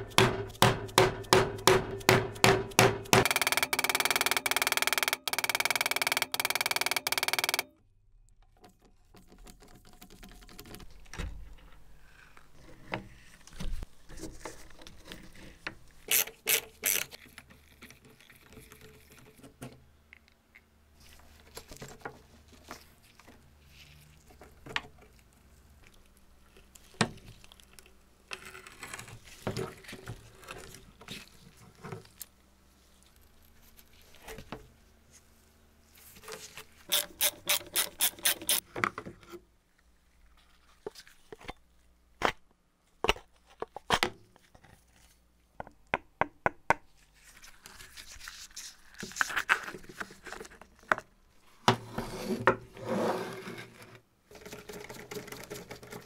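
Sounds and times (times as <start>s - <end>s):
sharp knocks: 0.0s - 5.5s
quick clicks: 3.2s - 7.7s.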